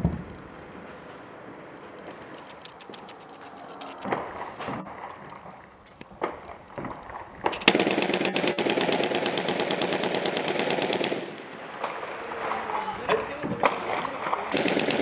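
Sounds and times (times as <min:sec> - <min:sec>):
automatic gunfire: 0:07.4 - 0:12.6, 0:13.6 - 0:15.0
single gunshots: 0:13.6 - 0:15.0.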